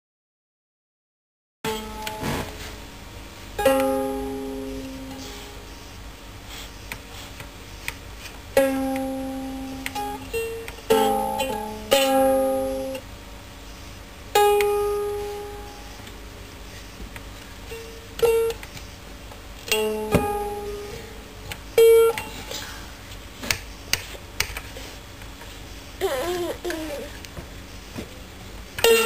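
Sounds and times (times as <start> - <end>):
ukulele strummed: 3.6 - 5.5, 8.6 - 13.0.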